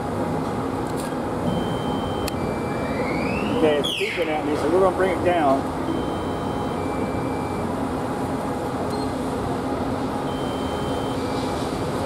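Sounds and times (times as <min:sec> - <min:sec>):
two-note electronic beeps: 0:01.5 - 0:03.6, 0:05.9 - 0:07.6, 0:10.3 - 0:11.3.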